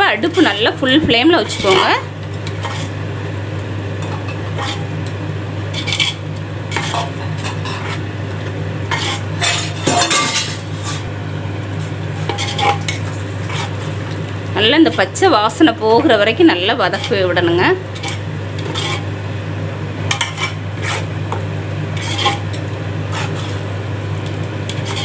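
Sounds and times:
steady low hum: 0:00.0 - 0:25.0
metal spoon scraping a pot: 0:01.4 - 0:03.0, 0:04.0 - 0:05.0, 0:05.7 - 0:08.1, 0:08.9 - 0:11.1, 0:12.2 - 0:14.0, 0:16.8 - 0:19.1, 0:20.1 - 0:21.1, 0:22.0 - 0:23.7, 0:24.7 - 0:25.0.

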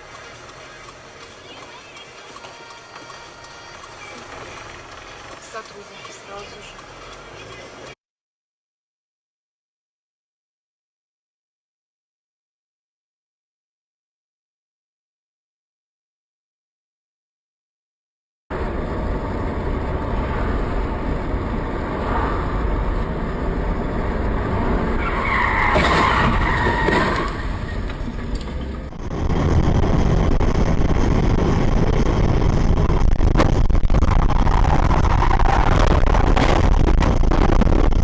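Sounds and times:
car engine and road noise: 0:00.0 - 0:08.0, 0:18.5 - 0:38.0
tyre squeal: 0:24.9 - 0:28.7.

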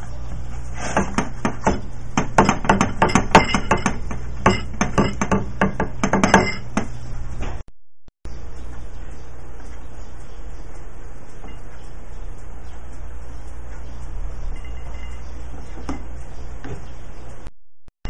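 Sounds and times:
steady low hum: 0:00.0 - 0:07.6, 0:08.3 - 0:17.5
utensils clinking on kitchenware: 0:02.6 - 0:06.8.

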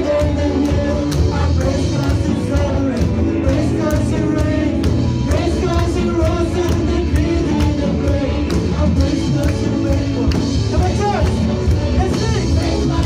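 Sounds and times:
drum and cymbal beat: 0:00.0 - 0:13.0
person singing: 0:00.0 - 0:13.0.

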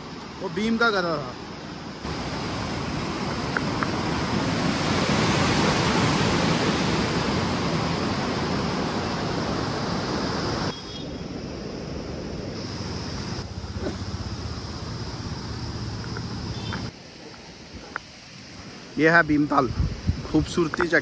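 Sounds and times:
water rushing down a spillway: 0:00.0 - 0:10.7
outdoor wind noise: 0:01.4 - 0:20.7.

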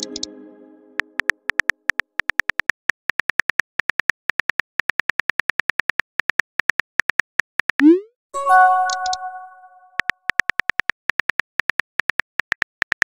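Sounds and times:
phone keyboard key clicks: 0:10.0 - 0:13.0.

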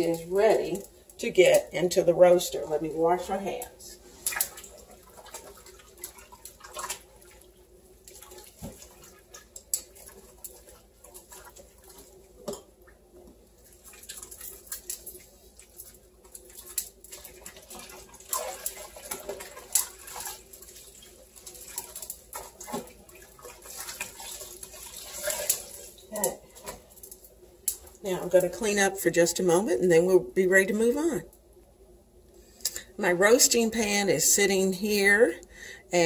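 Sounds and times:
tap water running and splashing: 0:02.5 - 0:28.8.

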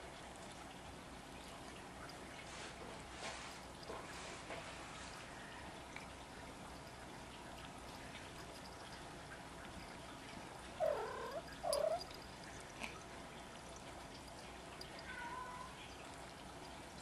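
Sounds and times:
cat mewing: 0:10.8 - 0:12.1.

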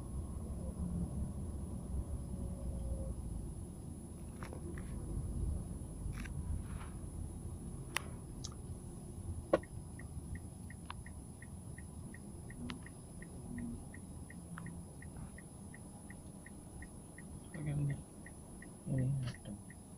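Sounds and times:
vehicle rolling slowly: 0:00.0 - 0:19.9
faint regular ticking: 0:09.6 - 0:19.9.

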